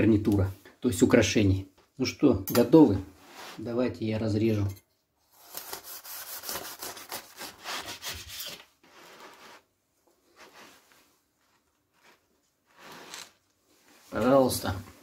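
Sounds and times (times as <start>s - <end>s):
knife sawing through crust: 5.3s - 8.6s.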